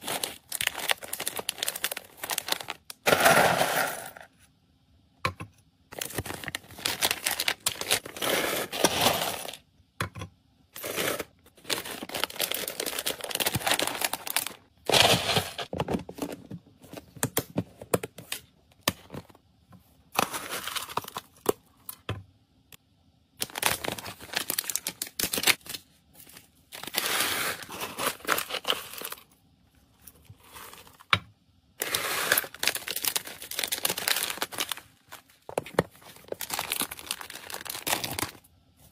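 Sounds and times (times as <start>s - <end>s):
plastic bags crinkling: 0.0s - 4.2s, 5.9s - 9.6s, 10.8s - 16.3s, 23.4s - 29.3s, 30.1s - 31.1s, 31.8s - 38.4s.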